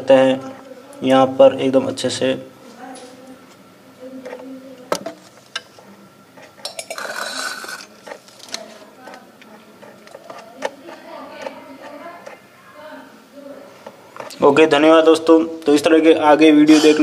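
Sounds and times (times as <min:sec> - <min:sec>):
tin scraping on stone: 0:06.4 - 0:08.7.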